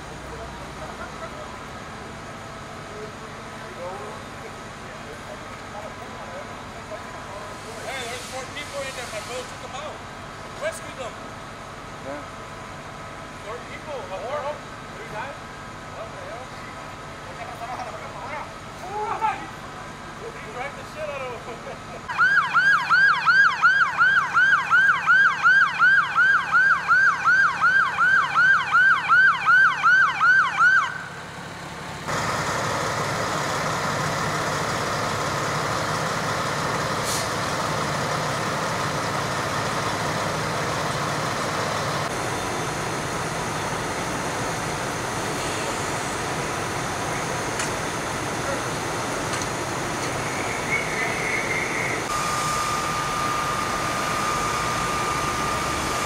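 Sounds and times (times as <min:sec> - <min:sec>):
fire engine droning: 0:00.0 - 0:56.0
fire engine siren yelping: 0:22.0 - 0:56.0.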